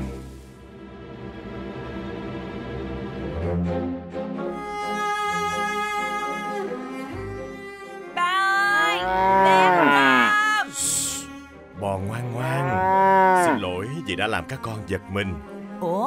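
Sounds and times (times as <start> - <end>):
soft cello lullaby music: 4.4 - 16.0
cows mooing: 8.7 - 11.2, 12.0 - 13.8
hissing shh: 10.7 - 11.4.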